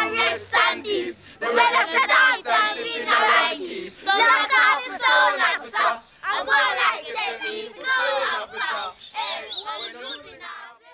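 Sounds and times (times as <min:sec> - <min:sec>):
children chanting and shouting: 0:00.0 - 0:10.9.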